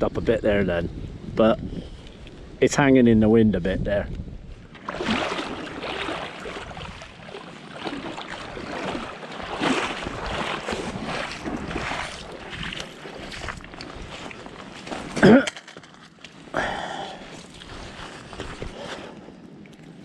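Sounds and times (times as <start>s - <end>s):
wind buffeting microphone: 0.0s - 15.2s.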